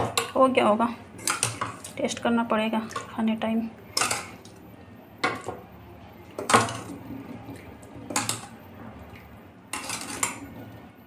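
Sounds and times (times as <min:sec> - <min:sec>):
metal ladle clattering in pot: 0:03.9 - 0:04.4, 0:08.1 - 0:08.5, 0:09.7 - 0:10.4.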